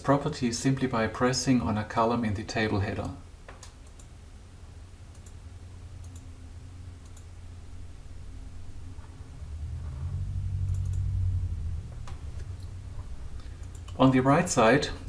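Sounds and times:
computer mouse clicking: 3.5 - 4.1, 5.1 - 5.4, 6.0 - 6.3, 7.0 - 7.3, 10.6 - 11.1, 13.4 - 14.0
low hum: 3.8 - 15.0.

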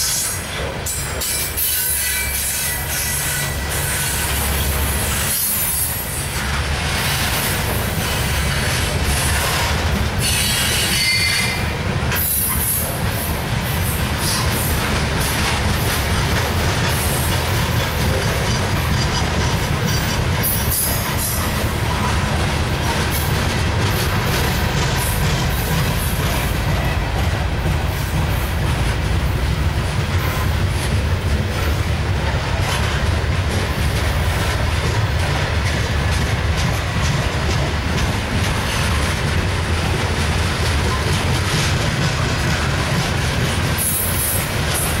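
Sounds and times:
train wheels rumbling on rails: 0.0 - 45.0
high wheel squeal: 1.2 - 6.0, 10.2 - 11.7.

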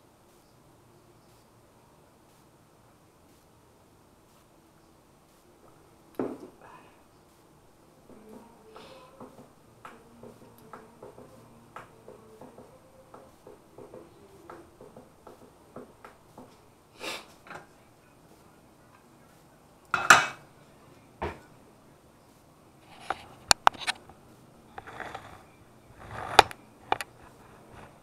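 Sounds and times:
pan clattering on burner grate: 19.9 - 20.4.

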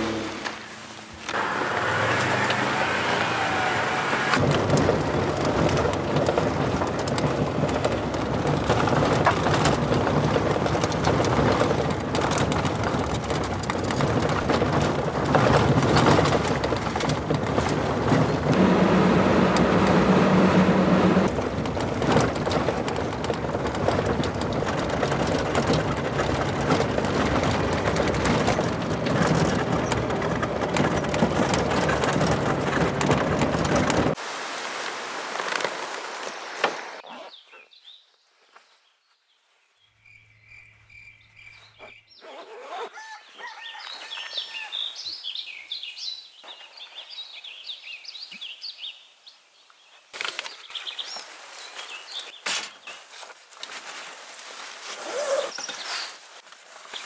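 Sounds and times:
truck engine: 0.0 - 34.2
tyres on gravel: 0.0 - 37.4, 50.2 - 57.0.

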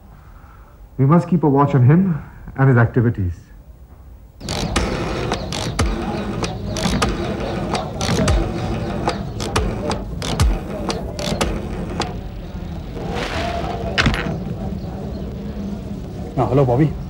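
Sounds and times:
rotary dial clicking: 4.4 - 12.5.

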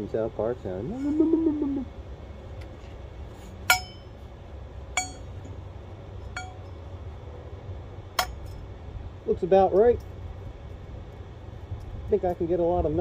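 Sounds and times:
metal pipes clinking on steel: 3.7 - 4.2, 5.0 - 5.5, 6.3 - 6.8.

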